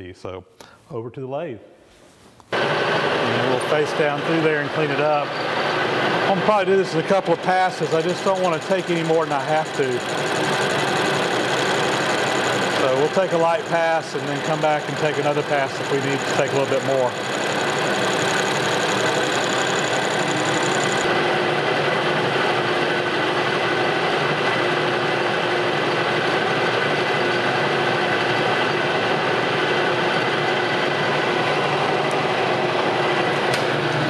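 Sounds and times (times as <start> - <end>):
metal lathe cutting: 4.7 - 21.1.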